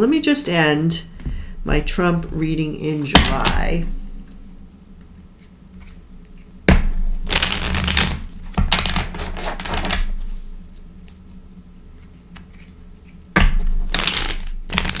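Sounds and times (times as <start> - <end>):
rapid card shuffling: 4.2 - 6.6, 7.2 - 15.0.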